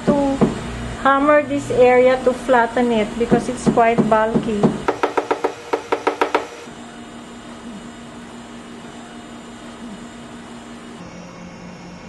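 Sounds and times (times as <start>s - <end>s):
sewing machine motor humming: 4.9s - 6.7s.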